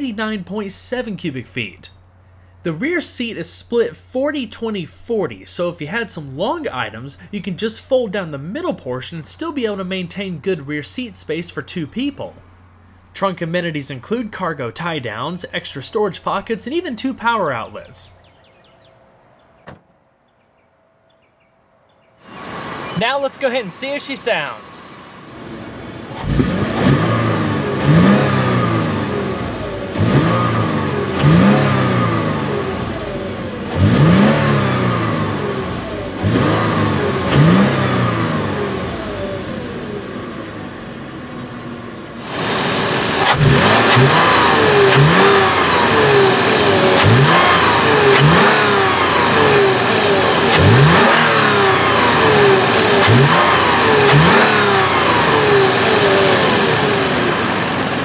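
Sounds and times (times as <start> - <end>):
car engine revving: 22.2 - 58.0.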